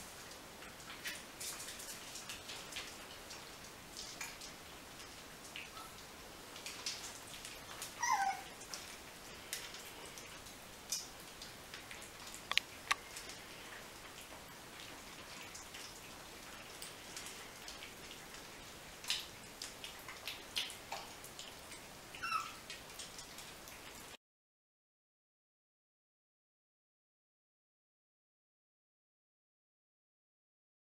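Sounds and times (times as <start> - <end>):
puppy whimper: 8.0 - 8.5, 22.2 - 22.6.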